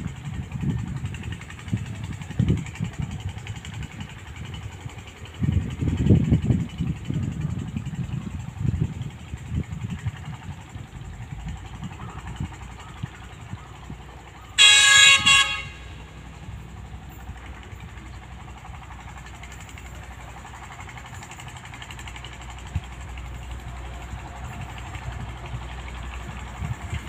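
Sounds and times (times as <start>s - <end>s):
low train rumble: 0.0s - 27.0s
train horn blast: 14.6s - 16.2s.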